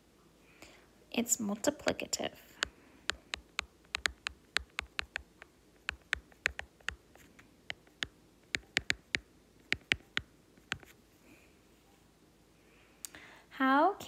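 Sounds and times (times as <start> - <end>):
stylus tapping on glass screen: 2.6 - 7.0, 7.7 - 10.9.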